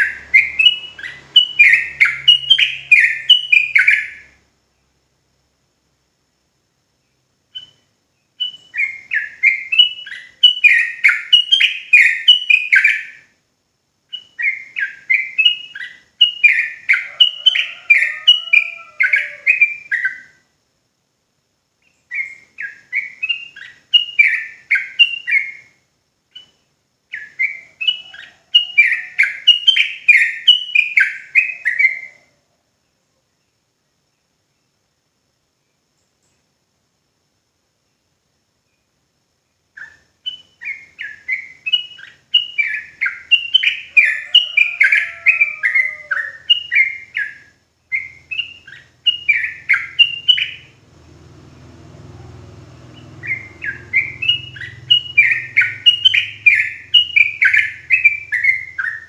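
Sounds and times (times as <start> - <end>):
bulbul singing rapid notes: 52.9 - 59.0.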